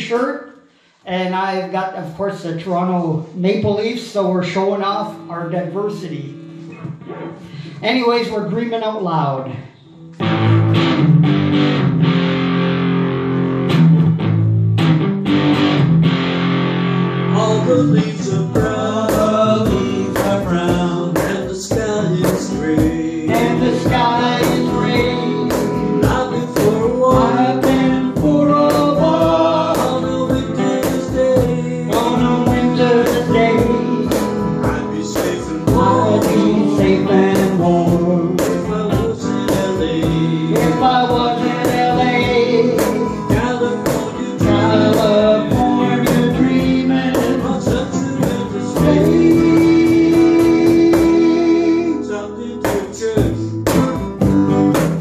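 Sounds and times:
electric guitar: 9.6s - 55.0s
strummed acoustic guitar: 10.0s - 55.0s
man singing: 17.3s - 55.0s
cajon beat: 18.0s - 52.0s, 52.6s - 55.0s.

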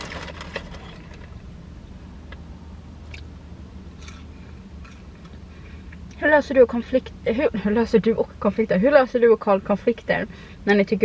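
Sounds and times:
car interior hum: 0.0s - 11.0s.

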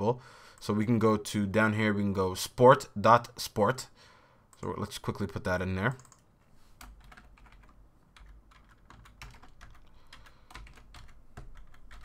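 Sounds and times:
faint keyboard typing: 5.8s - 12.0s.

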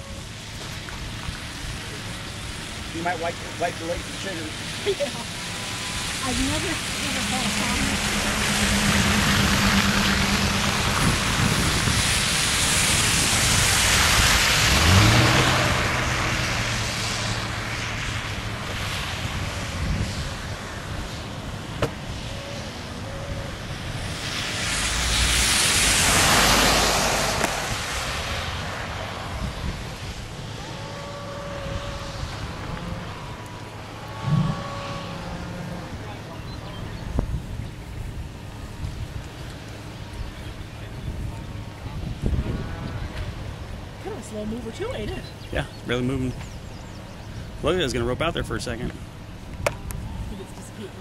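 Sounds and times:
vehicles passing on road: 0.0s - 51.0s.

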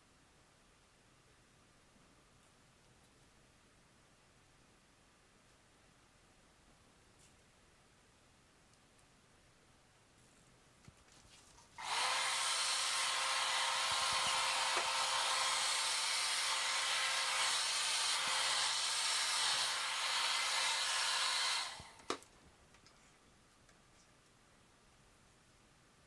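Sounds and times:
hair dryer blowing: 11.8s - 22.2s.

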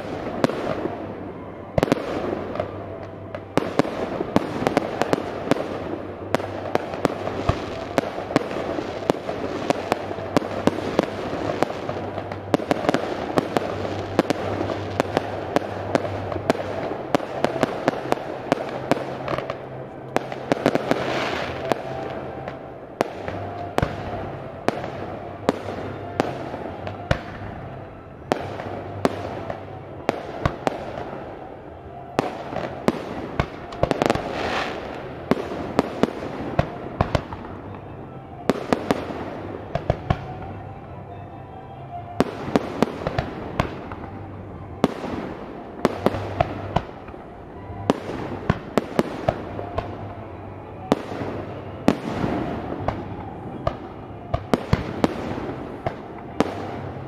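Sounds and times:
orchestral music over loudspeakers: 0.0s - 57.0s.

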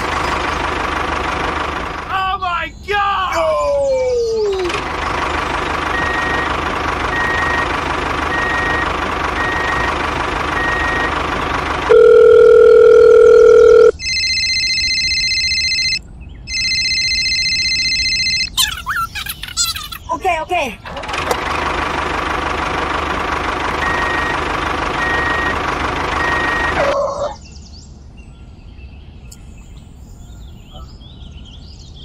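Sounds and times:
phone ringtone: 11.9s - 18.6s.

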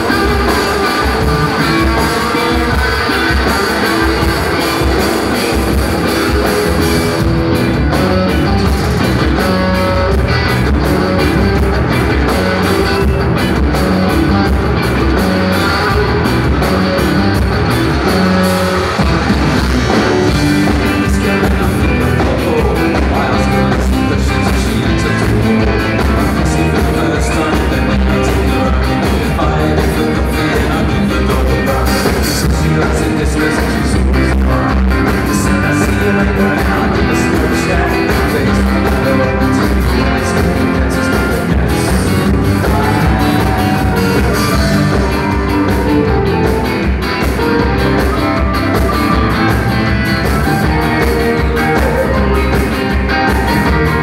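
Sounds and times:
drums: 0.0s - 54.0s
electric guitars: 0.0s - 54.0s
keyboards: 0.0s - 54.0s
person singing: 18.0s - 54.0s.

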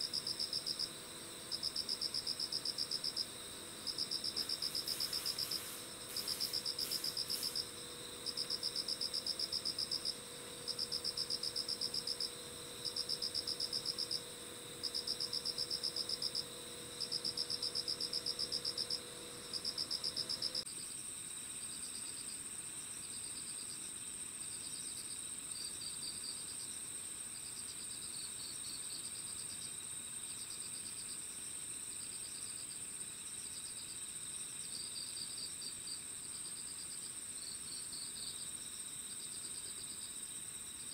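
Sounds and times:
insect pulsed trilling: 0.0s - 20.6s
steady high insect trill: 0.0s - 40.9s
soft irregular insect chirps: 1.5s - 16.4s.

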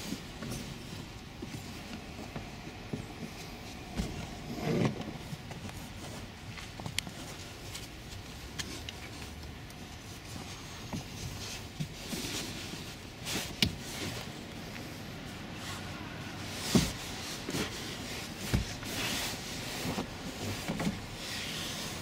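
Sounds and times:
fabric cushion rubbing and shuffling: 0.0s - 22.0s.

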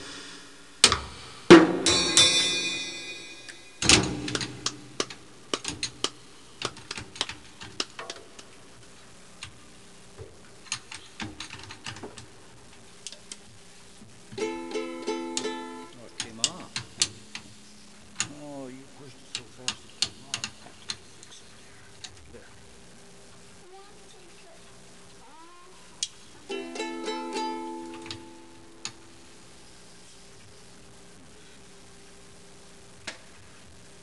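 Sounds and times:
drum kit hits: 0.0s - 5.3s
cymbal ringing: 1.5s - 3.8s
toy guitar notes: 14.4s - 16.6s, 26.5s - 29.0s.

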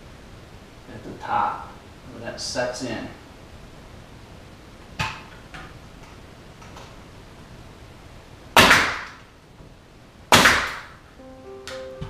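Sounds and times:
nail gun firing with hiss: 8.6s - 9.2s, 10.3s - 11.0s.

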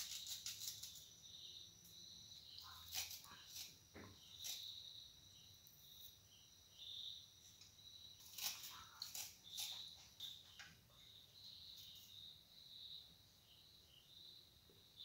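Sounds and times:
faint high-pitched chirping: 0.0s - 15.0s.

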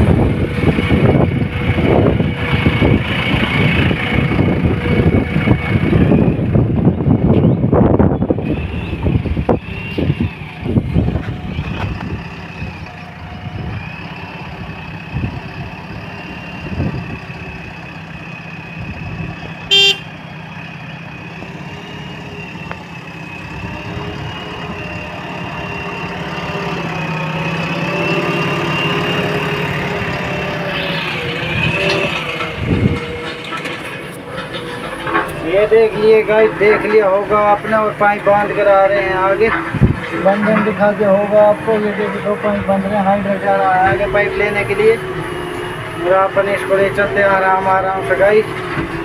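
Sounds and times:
diesel engine running with whine: 0.0s - 49.0s
short horn toot: 19.7s - 20.1s.

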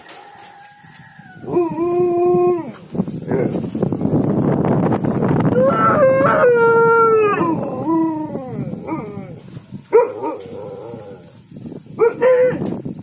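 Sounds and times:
dog howling: 1.3s - 3.5s, 5.6s - 9.4s.

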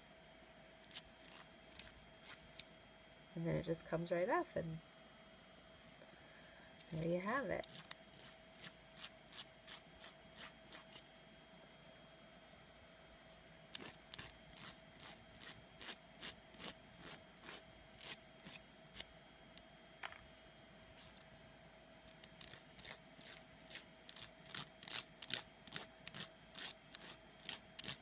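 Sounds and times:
nail file strokes: 0.9s - 2.6s, 7.6s - 11.0s, 13.7s - 19.1s, 21.0s - 21.2s, 22.1s - 28.0s.

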